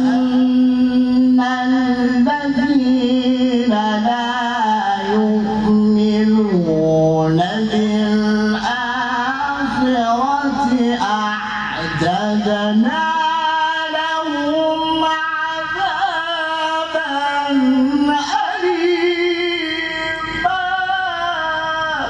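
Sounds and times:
man reciting melodically into microphone: 0.0 - 22.0.

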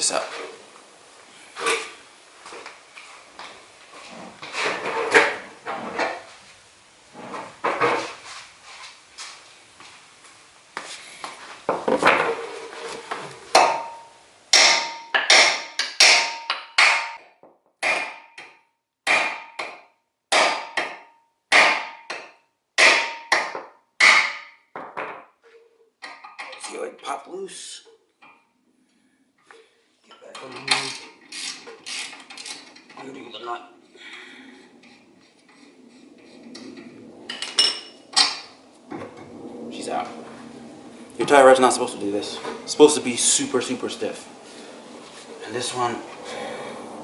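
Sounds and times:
hammer striking metal: 13.5 - 17.2, 17.8 - 24.6.

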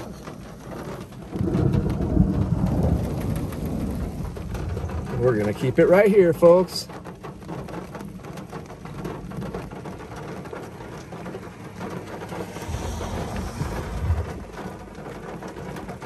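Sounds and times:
low rumble of thunder: 0.0 - 16.0
rain on car roof and glass: 0.0 - 16.0.

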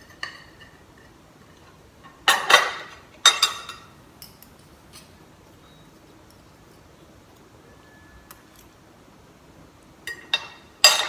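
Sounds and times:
light cutlery clicks: 3.3 - 5.2.

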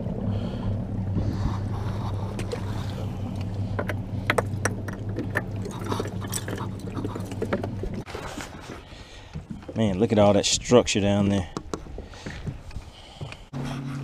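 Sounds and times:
low mechanical hum: 0.0 - 8.0
fish and gear rattling: 1.3 - 12.9.

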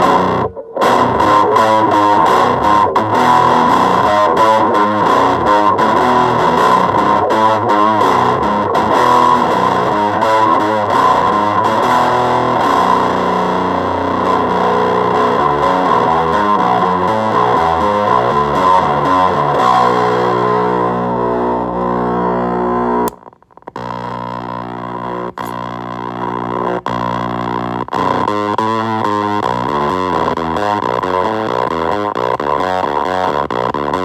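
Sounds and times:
distorted fuzz electric guitar: 0.0 - 34.0.

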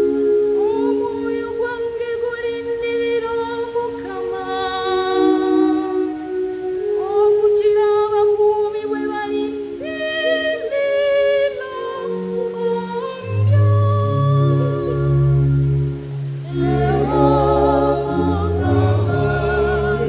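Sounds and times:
women's choir singing a hymn: 16.4 - 20.0.

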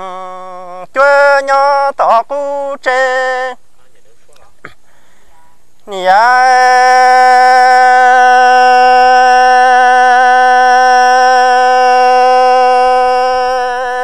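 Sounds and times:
person singing a long note: 5.9 - 14.0.

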